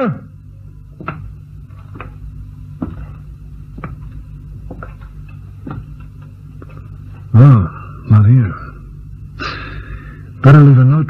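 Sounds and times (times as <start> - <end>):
low hum: 0.0 - 11.0
footsteps on wooden floor: 0.8 - 7.3.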